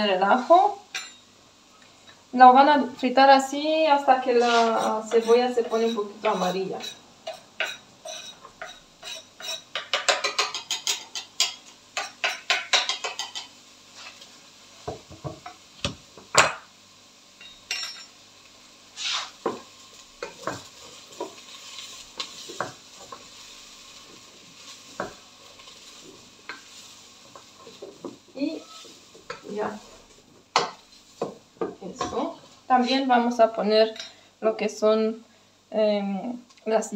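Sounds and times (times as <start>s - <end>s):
onion sizzling in oil: 0.0s - 36.9s
garlic scraped off cutting board: 4.3s - 5.3s, 19.0s - 19.4s.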